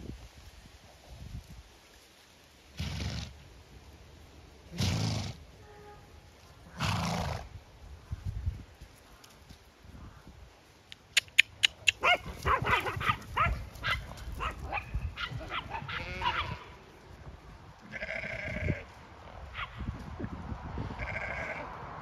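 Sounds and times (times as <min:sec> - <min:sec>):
pitched animal calls: 0:11.1 - 0:16.8.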